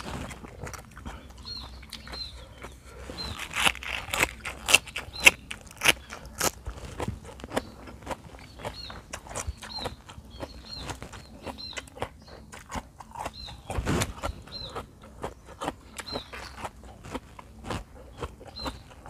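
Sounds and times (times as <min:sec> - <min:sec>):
chewing with wet mouth clicks: 0:00.0 - 0:19.0
high bird chirp: 0:01.2 - 0:04.0, 0:07.5 - 0:12.6, 0:13.2 - 0:14.8, 0:15.4 - 0:16.7, 0:18.1 - 0:19.0.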